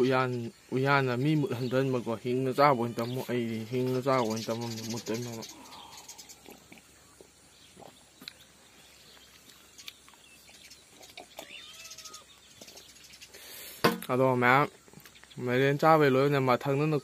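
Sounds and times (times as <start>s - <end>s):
short animal calls: 11.0s - 12.4s.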